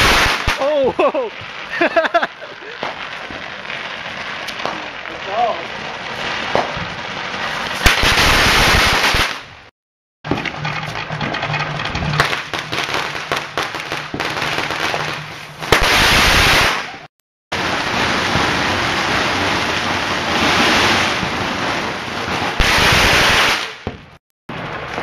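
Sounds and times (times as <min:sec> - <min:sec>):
firecracker cracks: 0:00.0 - 0:03.6, 0:04.2 - 0:05.6, 0:06.4 - 0:09.7, 0:12.2 - 0:21.6, 0:22.4 - 0:25.0
fireworks hissing and spraying: 0:00.0 - 0:09.7, 0:12.2 - 0:25.0.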